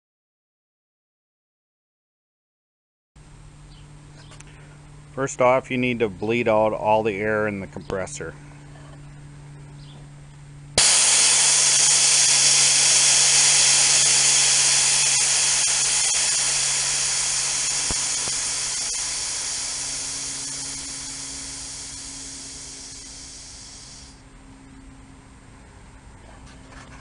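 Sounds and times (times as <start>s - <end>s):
compressed air hissing: 10.8s - 24.2s.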